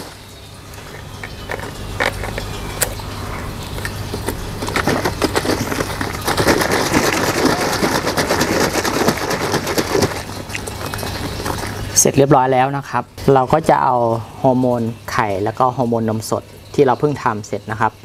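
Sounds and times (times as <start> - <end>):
liquid sloshing in plastic jug: 0.0 - 12.3.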